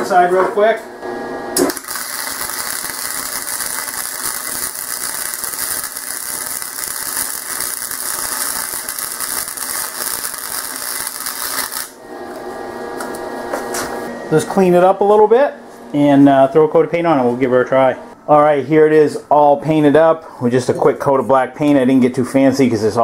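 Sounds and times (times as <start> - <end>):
welding arc crackling: 1.5 - 12.0.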